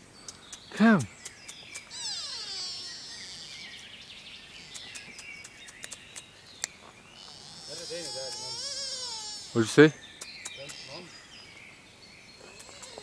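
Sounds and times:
small clicks and ticks: 0.2s - 2.1s, 4.7s - 6.7s
high bird call: 0.3s - 4.0s, 7.1s - 11.3s, 12.4s - 13.0s.

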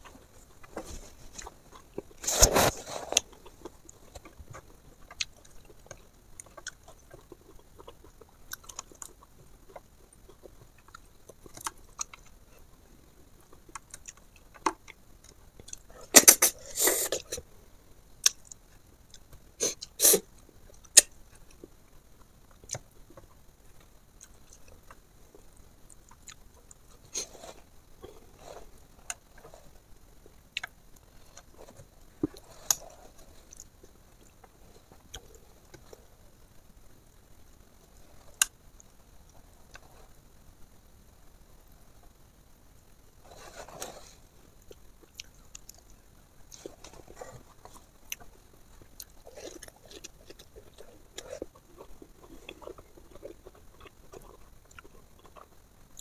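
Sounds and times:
person chewing: 0.4s - 12.4s, 25.9s - 29.8s, 43.3s - 56.0s.

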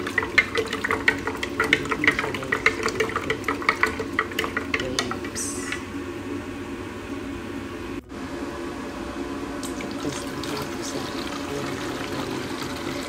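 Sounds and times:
stirrer knocking against glass: 0.0s - 5.4s
liquid sloshing: 0.0s - 5.9s, 9.6s - 13.0s.

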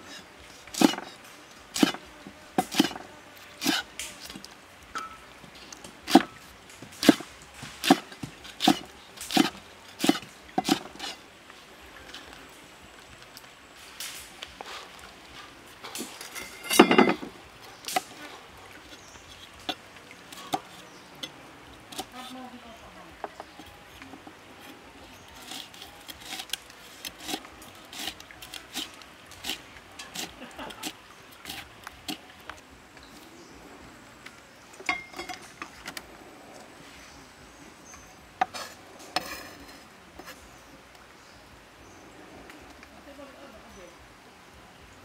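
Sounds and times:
cleaver chopping on wooden block: 7.0s - 11.0s.

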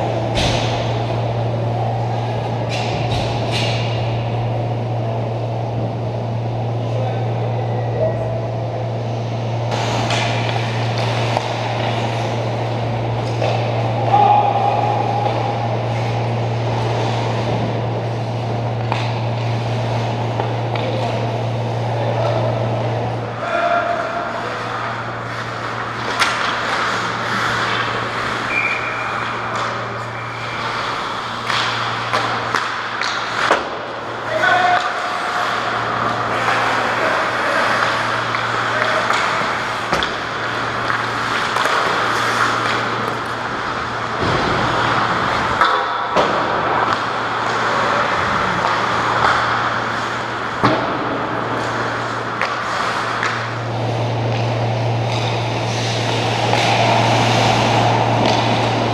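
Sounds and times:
steady low hum: 0.0s - 58.9s
skates scraping ice: 9.1s - 58.9s
hockey sticks clacking on puck: 9.7s - 15.7s, 18.8s - 21.2s, 24.3s - 58.9s
players shouting: 13.6s - 15.9s, 55.9s - 58.9s.

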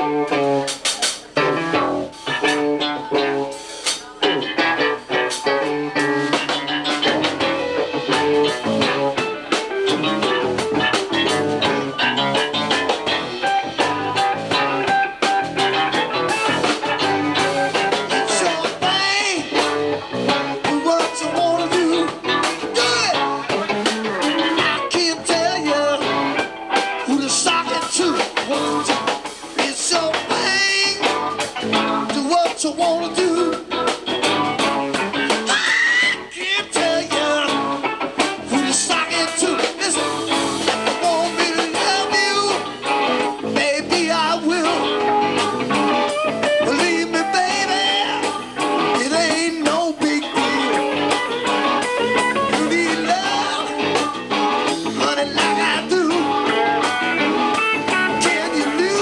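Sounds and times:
blues-rock band playing: 0.0s - 59.0s
man singing: 16.8s - 26.4s, 27.0s - 34.0s, 35.4s - 56.9s, 57.8s - 59.0s.

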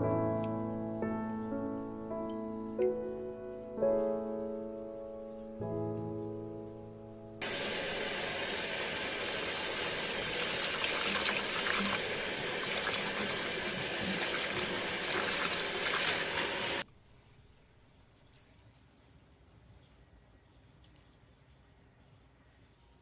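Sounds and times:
tap water running into sink: 7.4s - 16.8s.

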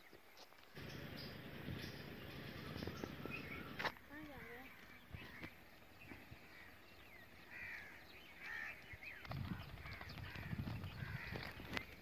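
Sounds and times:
crows cawing: 3.6s - 5.6s, 6.3s - 11.9s.

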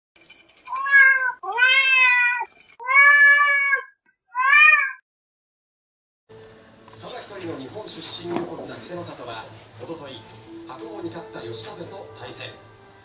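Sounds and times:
thin high ringing tone: 0.2s - 1.4s, 2.2s - 2.8s
cat meowing: 0.7s - 5.0s.

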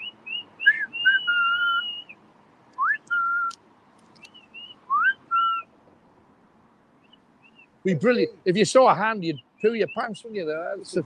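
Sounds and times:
short whistled chirps: 0.0s - 2.2s, 2.8s - 3.6s, 4.2s - 5.7s
person whistling: 2.8s - 3.6s.

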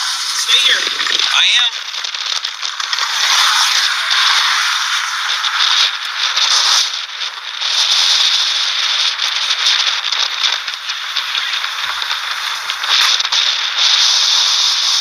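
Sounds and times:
strong wind rushing: 0.0s - 1.7s
crackling and rattling: 0.2s - 14.1s.

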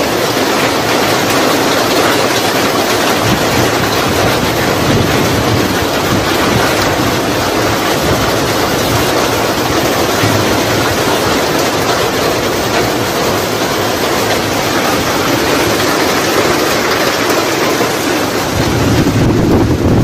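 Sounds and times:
steady rain falling: 0.0s - 20.0s
low rumble: 9.8s - 14.4s.

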